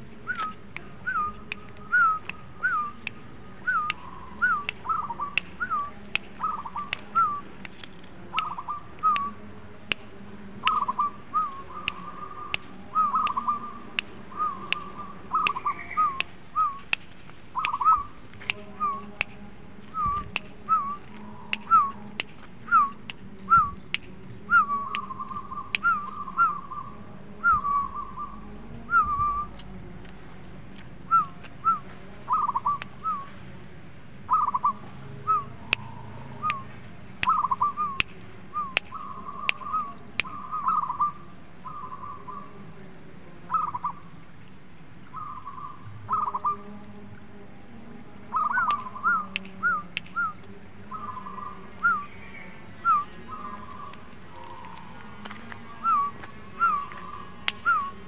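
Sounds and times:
dove cooing: 0:03.6 - 0:07.5, 0:08.3 - 0:09.4, 0:10.6 - 0:16.9, 0:17.6 - 0:19.2, 0:20.0 - 0:23.8, 0:31.1 - 0:33.2, 0:34.3 - 0:38.0, 0:43.5 - 0:44.0, 0:45.2 - 0:46.7, 0:48.3 - 0:58.0.

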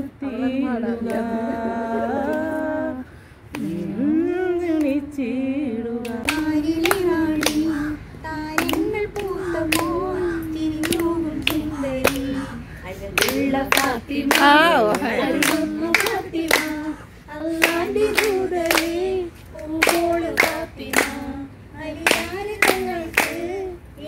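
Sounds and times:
women singing together: 0:00.0 - 0:24.0
hands clapping in time: 0:08.6 - 0:10.0, 0:10.8 - 0:12.3, 0:13.2 - 0:16.8.

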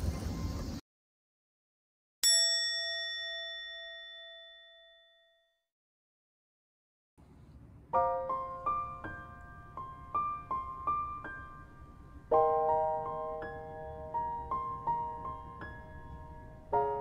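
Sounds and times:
gentle piano melody: 0:07.9 - 0:17.0.

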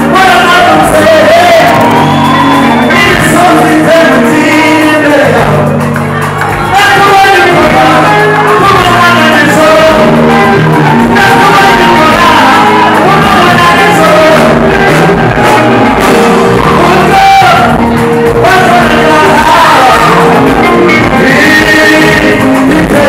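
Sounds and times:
man singing gospel song: 0:00.0 - 0:05.9, 0:06.5 - 0:23.0
live band with keyboard: 0:00.0 - 0:23.0.

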